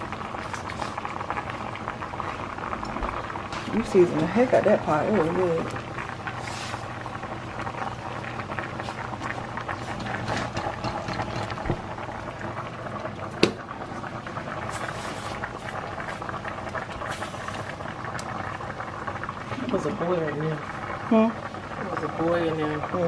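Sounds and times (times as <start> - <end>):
pot boiling and bubbling: 0.0 - 23.0.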